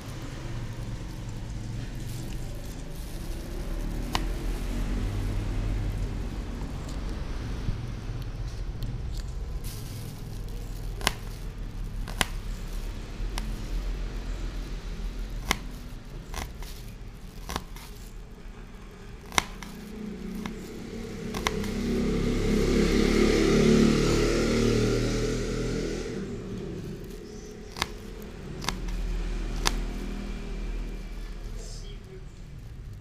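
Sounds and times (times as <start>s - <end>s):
knife slicing onion on board: 21.3s - 21.8s.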